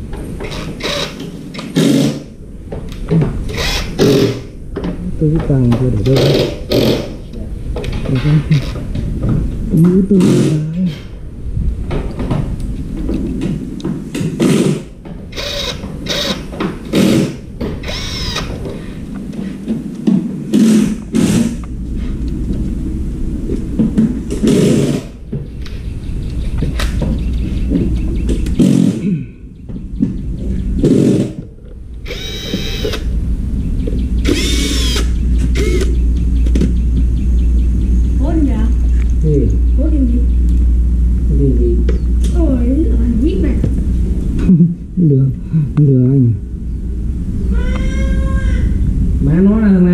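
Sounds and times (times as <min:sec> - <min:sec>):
steady low hum: 0:00.0 - 0:49.9
cordless drill whining: 0:00.5 - 0:01.2, 0:03.5 - 0:04.5, 0:15.3 - 0:18.6, 0:32.1 - 0:33.0, 0:34.2 - 0:35.9.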